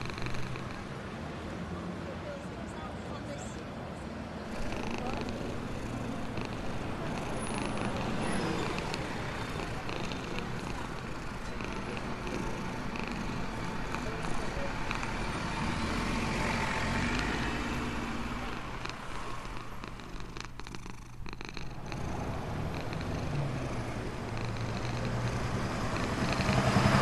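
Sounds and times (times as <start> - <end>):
cat purring: 0.0 - 1.0, 4.5 - 27.0
rushing traffic noise: 0.0 - 27.0.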